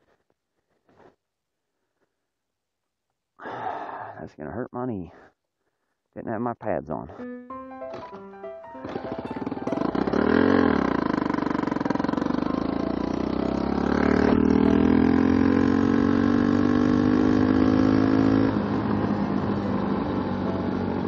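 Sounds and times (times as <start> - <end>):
motorcycle engine revving: 7.9 - 21.0.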